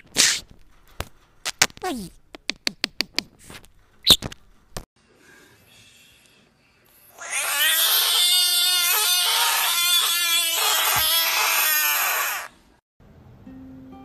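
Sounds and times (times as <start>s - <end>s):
frog screaming: 7.2s - 12.6s.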